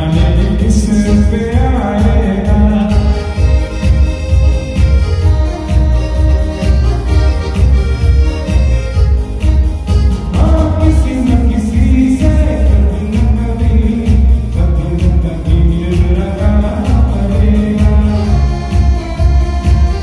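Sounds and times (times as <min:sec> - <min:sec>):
man singing: 0:00.0 - 0:04.5, 0:10.2 - 0:20.0
keyboard music with heavy bass: 0:00.0 - 0:20.0.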